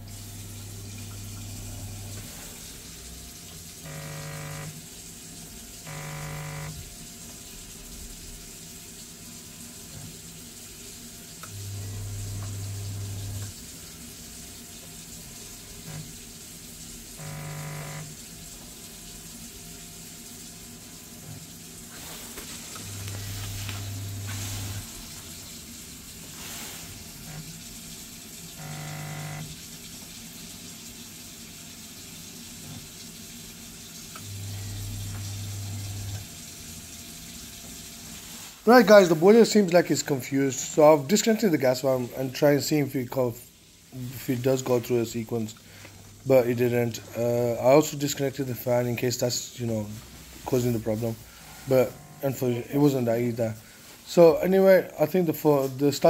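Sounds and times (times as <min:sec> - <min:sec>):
boiler low hum: 0:00.0 - 0:04.8, 0:05.5 - 0:08.6, 0:11.3 - 0:20.2, 0:20.9 - 0:27.7, 0:28.5 - 0:29.6, 0:34.1 - 0:36.9, 0:50.8 - 0:52.6
water running from tap: 0:00.0 - 0:55.0
short buzzes: 0:03.8 - 0:04.8, 0:05.8 - 0:06.8, 0:17.2 - 0:18.2, 0:28.6 - 0:29.5, 0:51.4 - 0:52.4.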